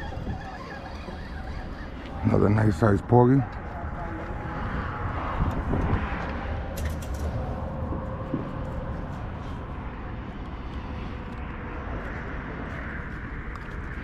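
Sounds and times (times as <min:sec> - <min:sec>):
traffic rumble: 0:00.0 - 0:14.0.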